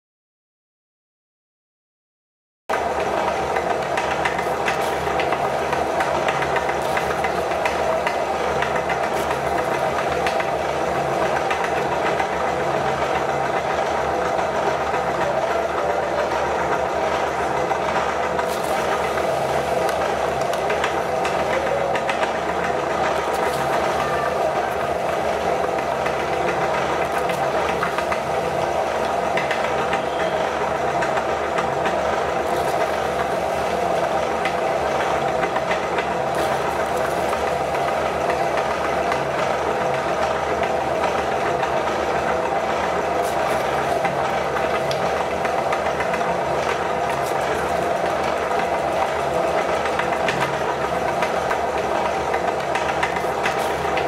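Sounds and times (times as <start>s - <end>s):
electric meat grinder running: 15.8s - 54.0s.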